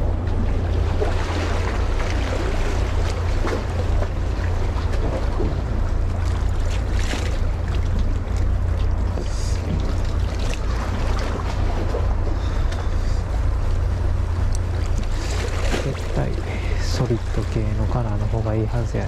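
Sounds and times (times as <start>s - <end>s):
sea waves washing: 0.0s - 19.0s.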